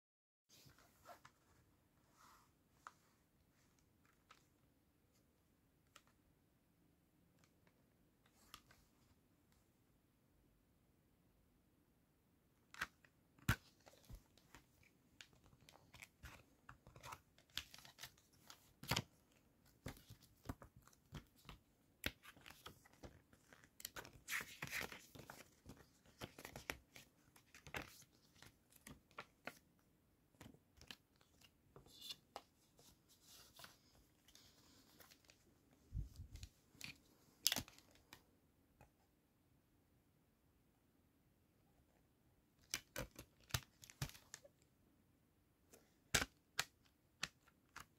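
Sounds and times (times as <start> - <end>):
paper rustling: 19.7 - 29.6.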